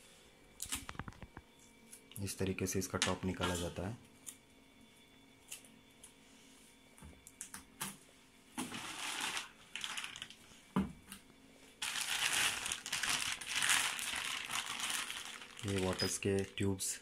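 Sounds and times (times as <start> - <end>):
plastic bag crinkling: 8.6 - 10.5, 11.8 - 16.8.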